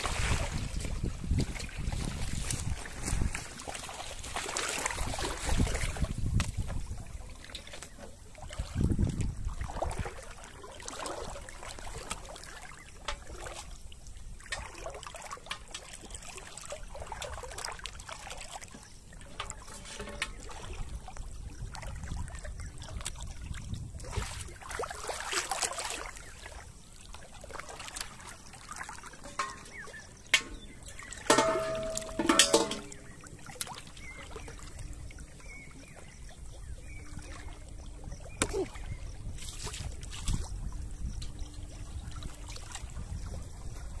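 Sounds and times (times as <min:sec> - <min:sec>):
small splashes and drips: 0:00.0 - 0:44.0
water sloshing around wading person: 0:00.0 - 0:44.0.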